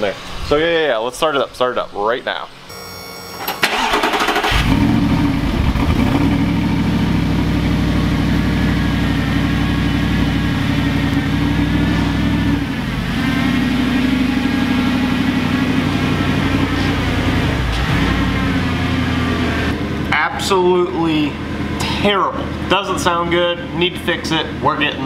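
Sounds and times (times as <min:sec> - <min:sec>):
car engine idling loudly: 0:03.7 - 0:20.1.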